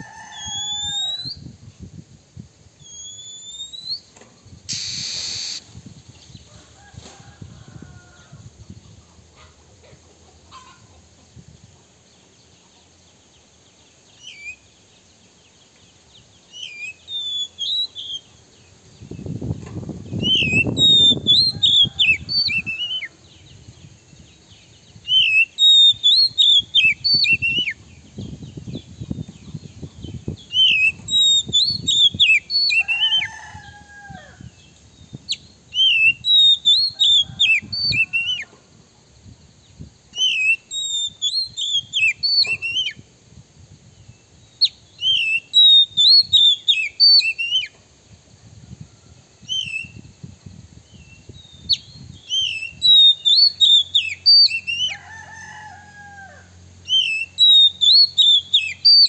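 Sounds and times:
bird singing whistled phrases: 0.4 - 1.4, 2.8 - 4.1, 14.2 - 14.6, 16.5 - 18.3, 20.2 - 23.1, 25.1 - 27.8, 30.4 - 33.3, 35.3 - 38.4, 40.2 - 43.0, 44.6 - 47.7, 49.5 - 50.1, 51.0 - 55.0, 56.9 - 59.0.

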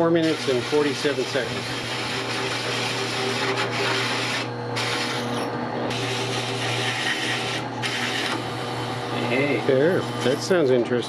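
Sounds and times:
drill press motor hum: 0.0 - 11.0
hole saw grinding metal: 0.0 - 11.0.

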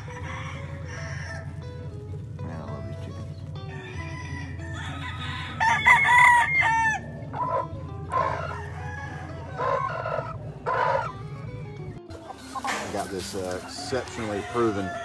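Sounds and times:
rooster crowing: 0.0 - 1.6, 3.7 - 11.2, 13.4 - 15.0.

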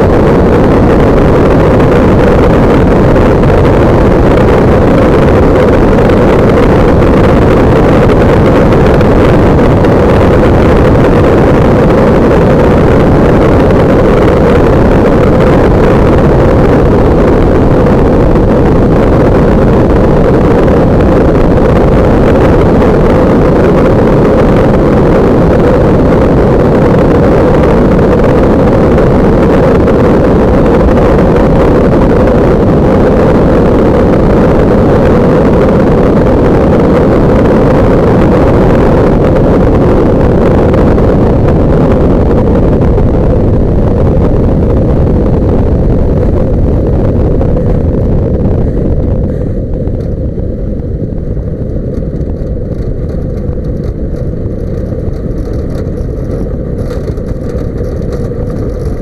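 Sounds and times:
ultralight aircraft engine and propeller: 0.0 - 59.0.

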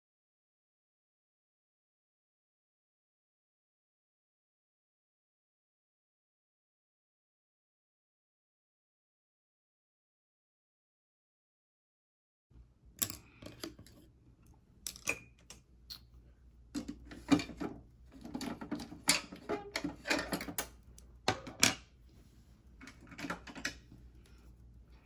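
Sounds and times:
small items clicking and clattering: 16.8 - 21.8, 22.8 - 23.9.

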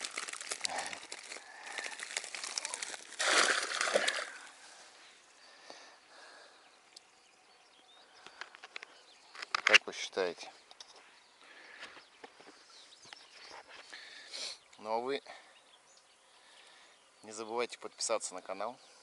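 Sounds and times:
net and grass rustling: 0.0 - 5.1.

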